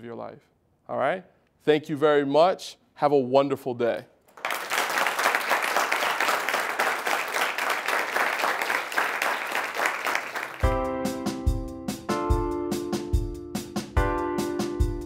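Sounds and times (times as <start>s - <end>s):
students applauding: 4.3s - 10.7s
instrumental music with low beat: 10.6s - 15.0s.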